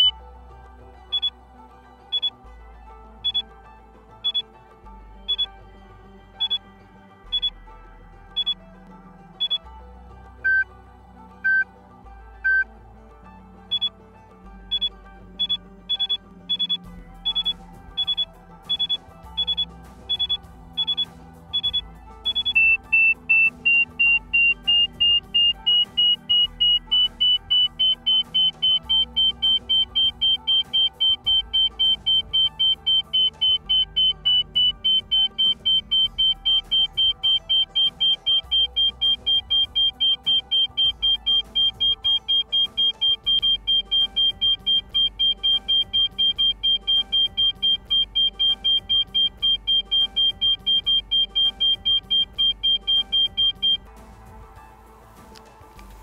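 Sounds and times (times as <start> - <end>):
soft background music: 0.0 - 56.0
avalanche transceiver beeping: 1.1 - 1.3, 2.1 - 2.3, 3.2 - 3.4, 4.2 - 4.4, 5.3 - 5.5, 6.4 - 6.6, 7.3 - 7.5, 8.4 - 8.6, 9.4 - 9.6, 10.4 - 10.6, 11.4 - 11.6, 12.4 - 12.6, 13.7 - 13.9, 14.7 - 53.8.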